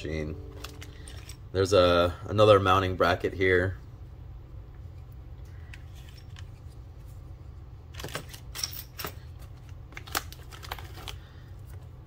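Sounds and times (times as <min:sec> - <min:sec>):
steady low hum: 0:00.0 - 0:12.0
plastic bag crinkling: 0:09.9 - 0:11.3.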